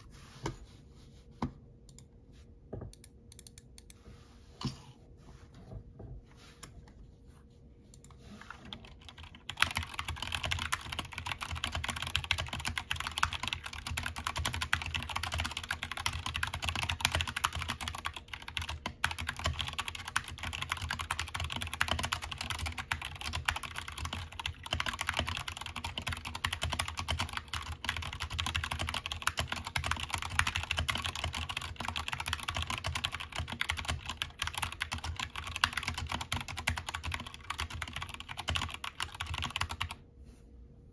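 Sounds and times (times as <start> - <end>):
fast typing on mechanical keyboard: 8.7 - 40.0.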